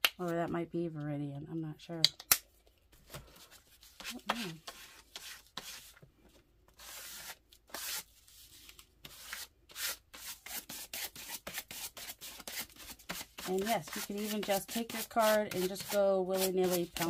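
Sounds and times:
plastic card scraping paint on paper: 0:06.8 - 0:17.0.

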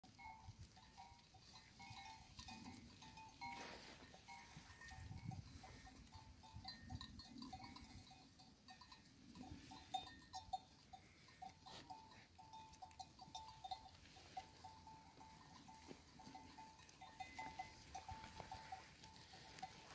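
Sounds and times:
sheep grazing: 0:00.0 - 0:19.9
small livestock bells ringing: 0:00.0 - 0:19.9.

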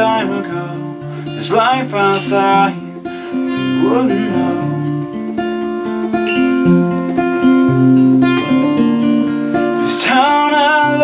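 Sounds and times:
acoustic guitar chords: 0:00.0 - 0:11.0
person singing folk song: 0:00.0 - 0:11.0.

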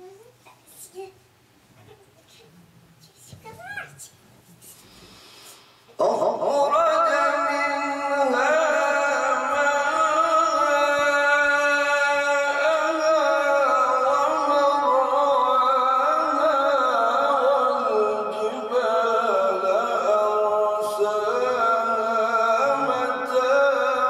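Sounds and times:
man reciting melodically: 0:05.9 - 0:24.0.

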